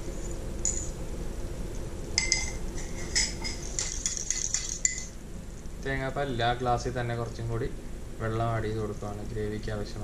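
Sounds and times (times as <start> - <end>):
ceramic mug clinking on metal pan: 2.2 - 5.2.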